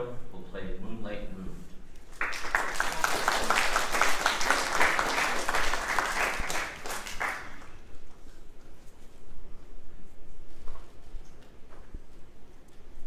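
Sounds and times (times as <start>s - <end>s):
audience applause: 2.1s - 7.8s.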